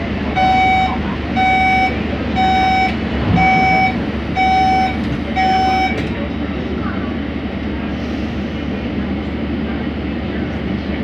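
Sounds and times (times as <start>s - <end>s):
high-pitched warning beeps: 0.4s - 6.0s.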